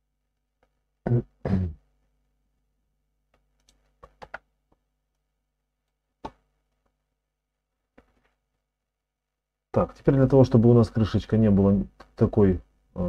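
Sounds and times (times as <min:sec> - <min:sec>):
mouse and keyboard clicks: 0:03.4 - 0:04.5.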